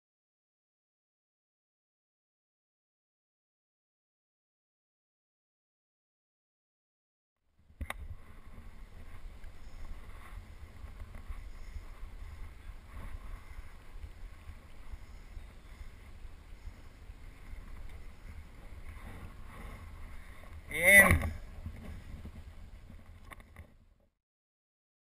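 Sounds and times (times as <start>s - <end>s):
wind buffeting microphone: 7.6s - 23.8s.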